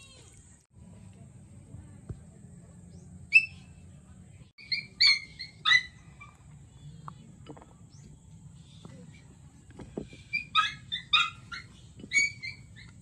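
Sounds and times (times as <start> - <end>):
high-pitched animal chirps: 4.6 - 6.3, 10.3 - 13.0.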